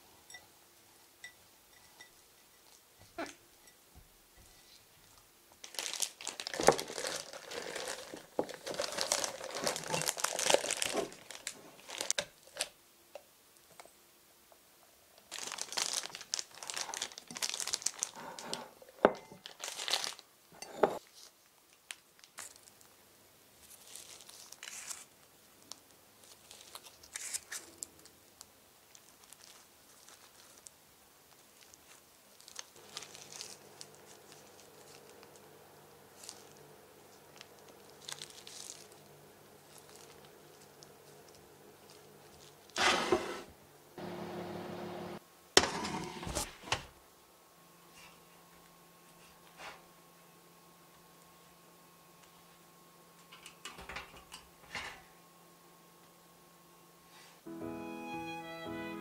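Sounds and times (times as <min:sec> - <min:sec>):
plastic piping bag crinkling: 0:05.6 - 0:12.7, 0:15.2 - 0:18.5, 0:19.4 - 0:20.3, 0:21.0 - 0:23.0, 0:23.6 - 0:42.8.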